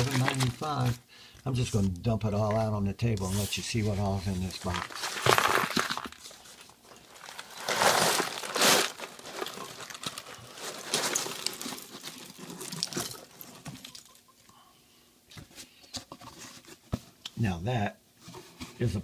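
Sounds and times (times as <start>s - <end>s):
small components clattering: 0.0s - 0.9s, 4.5s - 14.5s
plastic bags crinkling: 0.0s - 1.0s, 3.8s - 14.3s.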